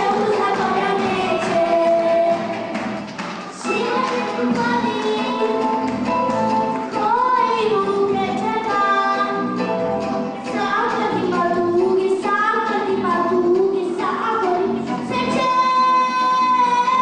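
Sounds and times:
girl singing into a microphone: 0.0 - 2.4, 3.6 - 5.6, 6.9 - 9.4, 10.4 - 17.0
backing track over loudspeaker: 0.0 - 17.0.

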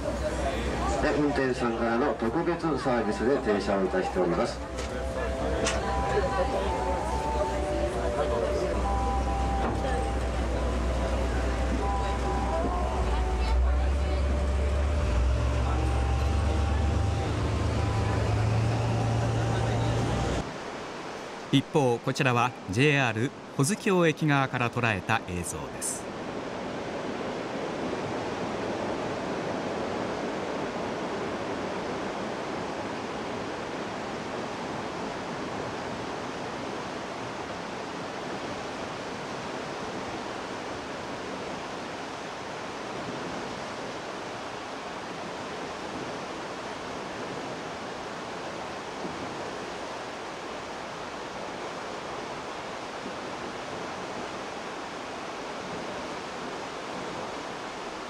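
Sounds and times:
river rushing through rocks: 0.0 - 58.0.

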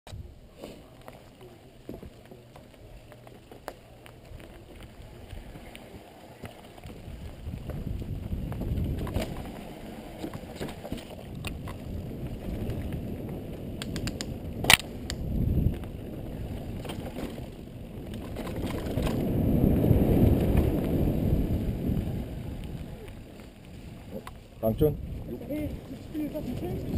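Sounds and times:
rumble of tyres and wind: 0.1 - 26.9
bike rattling clicks: 13.7 - 15.9.

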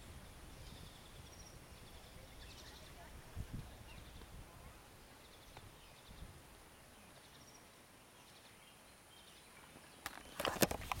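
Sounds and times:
faint bird chirps: 0.0 - 10.4
microphone handling noise: 10.2 - 11.0.

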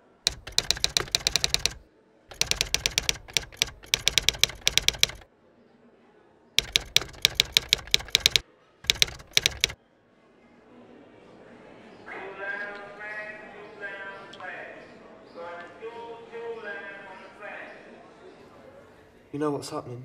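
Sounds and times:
typewriter keys striking: 0.0 - 5.2, 6.6 - 9.8.

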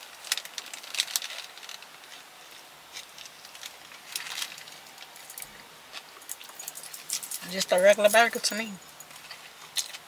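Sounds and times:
eating a burger close up: 0.0 - 7.8
crackling clicks and rustles: 0.0 - 10.0.

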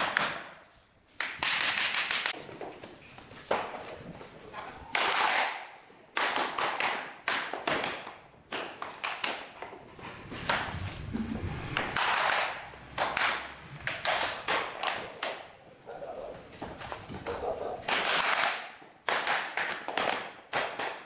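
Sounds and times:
hammer knocking floor planks: 6.2 - 15.4.

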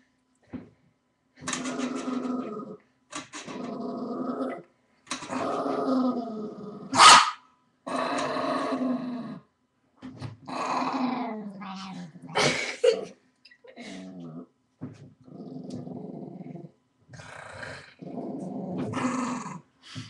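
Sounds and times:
dog growling: 1.4 - 2.8, 3.4 - 4.7, 5.3 - 7.0, 10.4 - 13.0, 13.8 - 14.5, 15.1 - 19.7
dog barking: 7.0 - 7.4.

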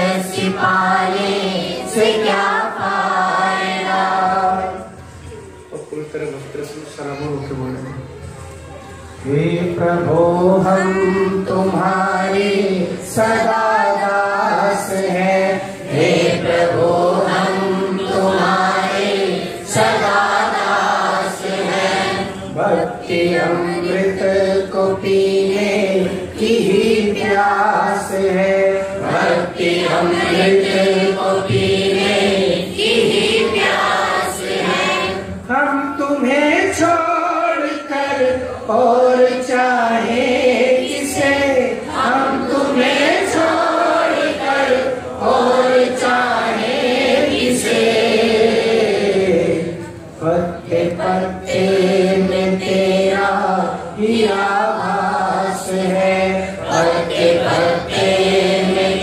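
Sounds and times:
many voices chanting a hymn: 0.0 - 6.0, 7.7 - 59.0
man singing into a microphone: 9.2 - 17.8, 35.4 - 43.9, 49.1 - 57.9.

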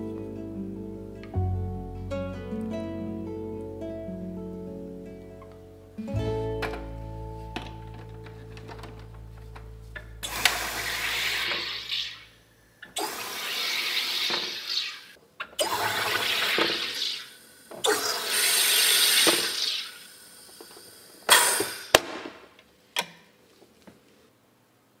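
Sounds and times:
gas hissing into water: 10.2 - 12.3, 13.0 - 22.0.

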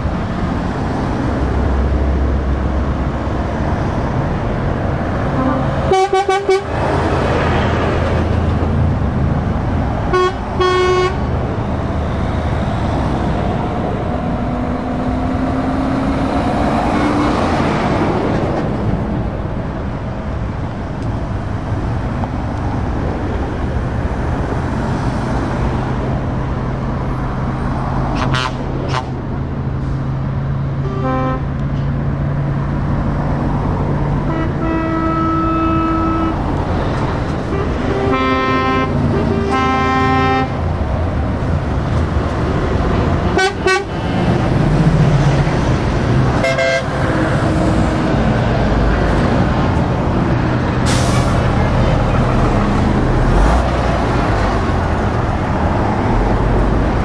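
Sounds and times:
diesel trucks passing: 0.0 - 57.0
truck horn blasts: 5.3 - 6.8, 10.1 - 11.3, 28.2 - 29.1, 30.8 - 31.6, 34.2 - 36.5, 37.5 - 40.6, 43.3 - 44.0, 46.4 - 47.2.

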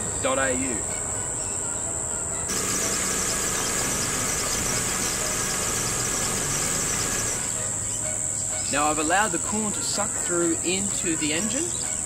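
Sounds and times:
cicadas buzzing: 0.0 - 12.0
car engine idling: 2.5 - 7.6.

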